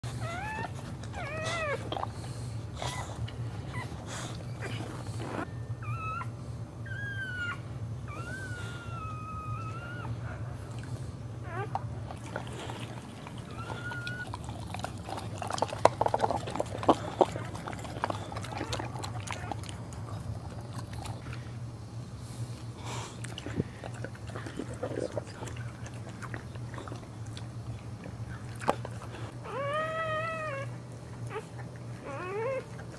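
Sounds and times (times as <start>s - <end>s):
dog whining: 0.0s - 2.1s, 2.8s - 10.7s, 11.4s - 21.4s, 28.2s - 32.9s
steady low hum: 0.0s - 32.9s.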